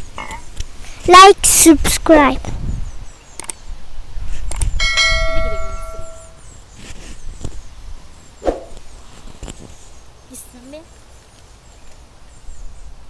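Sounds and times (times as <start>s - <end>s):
bell-like ringing strike: 4.8s - 6.4s.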